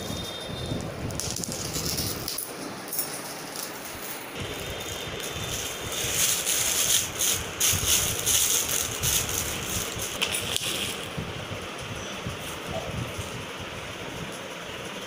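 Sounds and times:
plastic wrap crinkling: 0:03.6 - 0:11.1.

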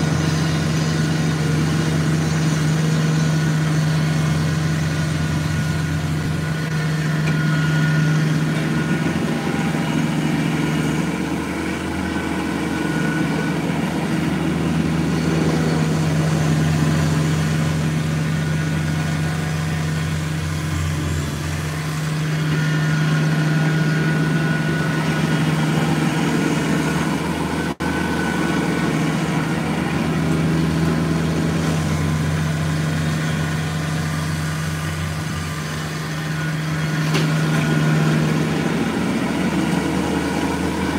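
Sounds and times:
diesel tractor engine running: 0:00.0 - 0:40.9.

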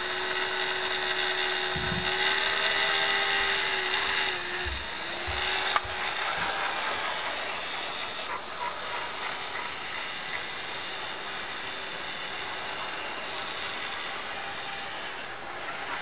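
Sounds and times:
faint electric motor hum: 0:00.0 - 0:16.0
model train wheels rolling on rails: 0:00.0 - 0:16.0
small clicks: 0:05.6 - 0:05.9.

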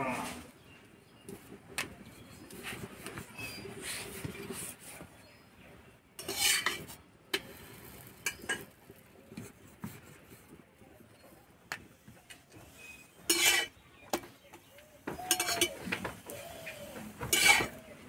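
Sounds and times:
metal utensils clinking: 0:06.2 - 0:08.8, 0:13.2 - 0:13.8, 0:15.1 - 0:16.0, 0:16.6 - 0:17.9.

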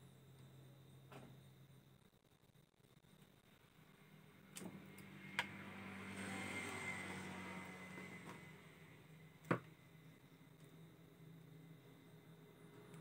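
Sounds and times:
motor vehicle passing by: 0:04.8 - 0:09.3.

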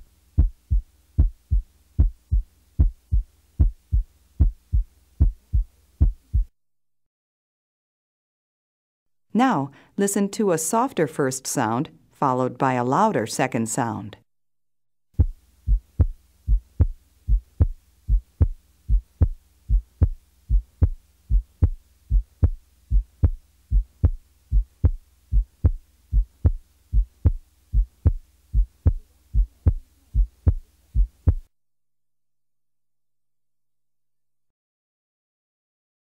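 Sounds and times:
heartbeat lub-dub: 0:00.0 - 0:06.5, 0:15.2 - 0:31.5.

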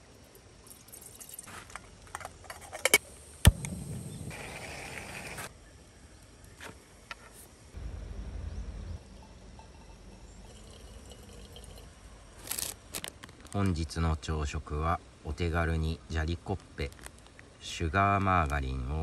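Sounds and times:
water pouring onto coffee: 0:00.6 - 0:01.5, 0:10.2 - 0:11.9
gas burner hissing: 0:03.1 - 0:05.5.

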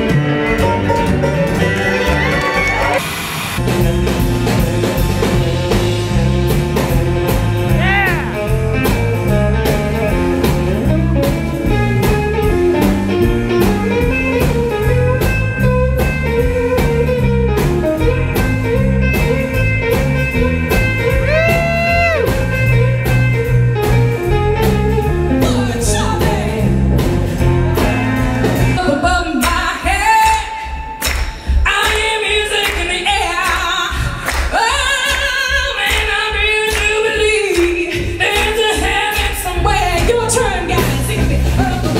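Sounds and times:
electric guitar lead: 0:00.0 - 0:29.2
bass and drums: 0:00.0 - 0:41.9
person singing: 0:07.7 - 0:08.6, 0:21.0 - 0:22.3.

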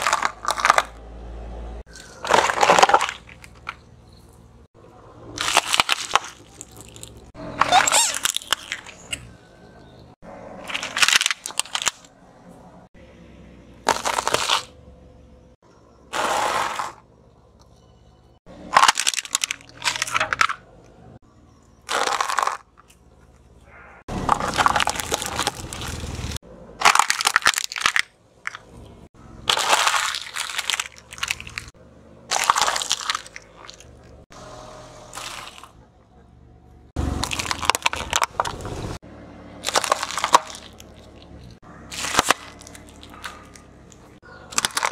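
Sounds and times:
tyre crushing plastic toys: 0:00.0 - 0:01.0, 0:01.9 - 0:04.2, 0:05.3 - 0:09.2, 0:10.6 - 0:12.1, 0:13.8 - 0:14.8, 0:16.1 - 0:17.0, 0:18.6 - 0:20.7, 0:21.8 - 0:23.0, 0:24.1 - 0:34.2, 0:35.1 - 0:35.8, 0:37.0 - 0:39.0, 0:39.6 - 0:44.9.

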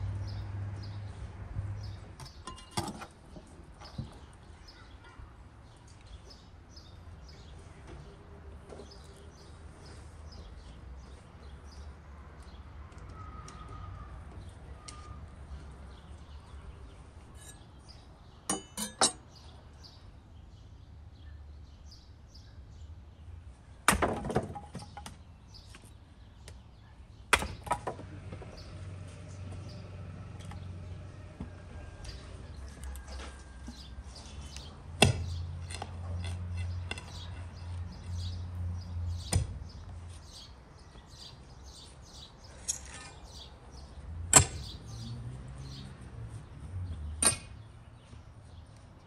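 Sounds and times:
outdoor background: 0:00.0 - 0:49.0
cooking utensils clinking: 0:18.5 - 0:19.3.

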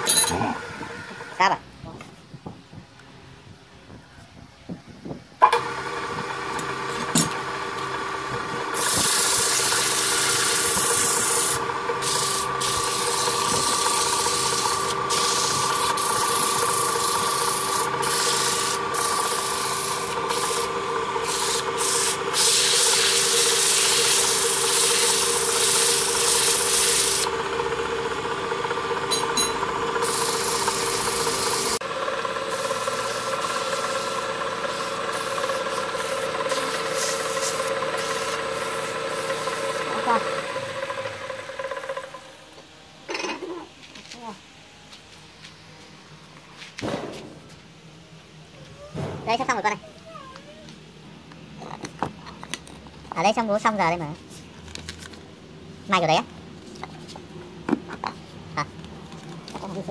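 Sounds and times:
lathe motor hum: 0:00.0 - 0:01.4, 0:05.5 - 0:42.7
sandpaper rubbing on spinning wood: 0:08.6 - 0:27.3, 0:29.9 - 0:40.9.

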